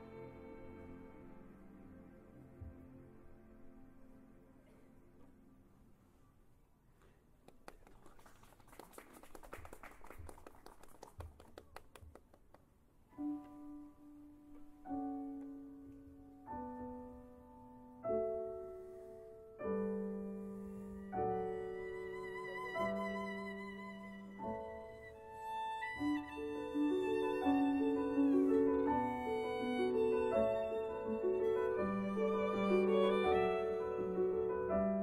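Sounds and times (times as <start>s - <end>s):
slow piano chords: 13.0s - 35.0s
violin with vibrato: 21.5s - 35.0s.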